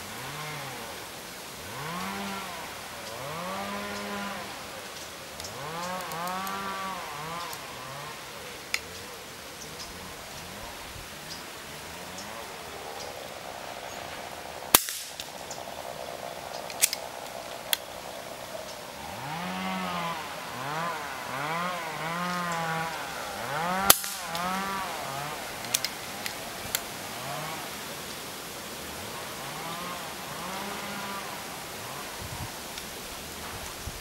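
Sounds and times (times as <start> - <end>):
rifle handling clicks: 16.7 - 17.0, 25.6 - 26.9.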